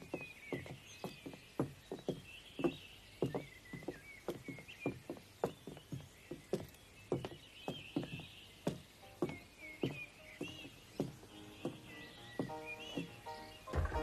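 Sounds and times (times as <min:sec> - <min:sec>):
faint high chirping: 0:00.0 - 0:14.0
horse hooves clopping: 0:00.0 - 0:14.0.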